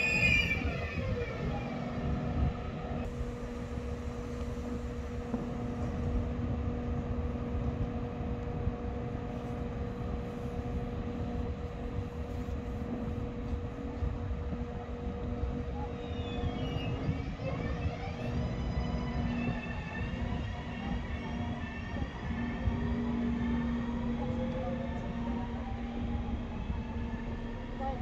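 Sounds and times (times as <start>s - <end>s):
train electrical hum: 0.0s - 28.0s
traction motor whine: 7.6s - 28.0s.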